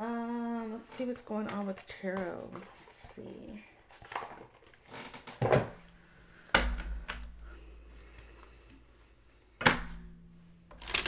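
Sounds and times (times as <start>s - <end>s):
cards rustling: 10.7s - 11.0s.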